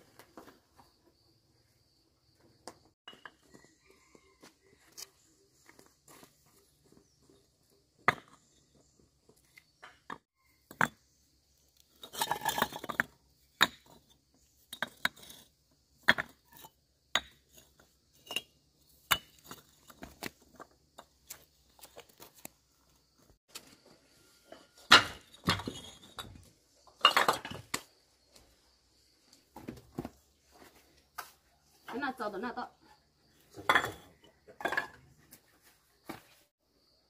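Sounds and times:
hard objects knocking and clinking: 33.6 - 35.1.

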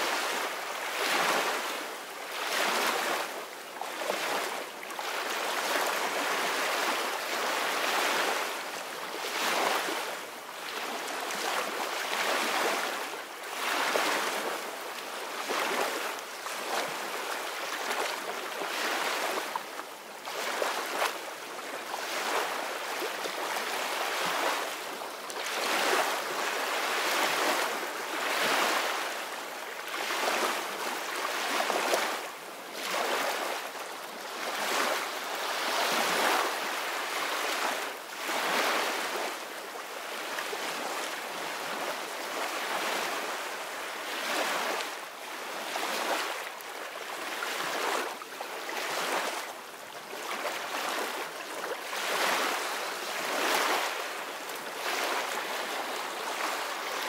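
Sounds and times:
gentle surf on sandy beach: 0.0 - 57.0.

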